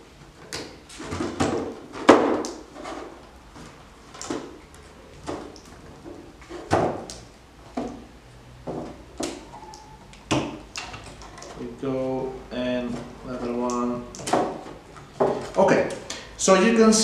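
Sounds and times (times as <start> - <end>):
wooden slats knocking and clicking: 10.3 - 11.6, 14.1 - 16.0.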